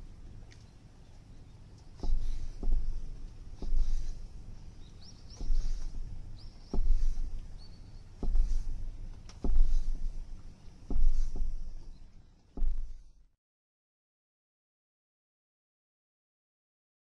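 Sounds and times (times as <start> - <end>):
knife chopping on wooden board: 2.0 - 4.4, 5.3 - 6.1, 6.7 - 7.5, 8.2 - 10.2, 10.9 - 11.8.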